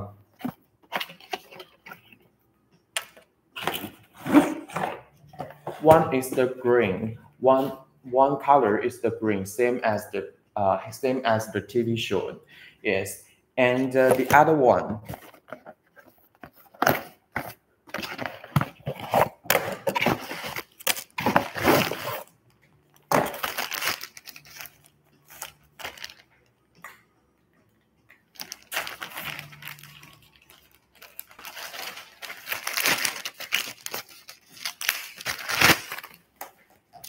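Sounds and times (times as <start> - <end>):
plastic bag crinkling: 22.9 - 26.3, 28.3 - 36.3.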